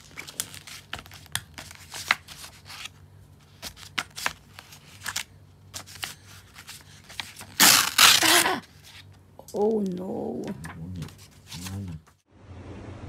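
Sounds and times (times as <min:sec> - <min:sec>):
faint low hum: 0:00.0 - 0:13.0.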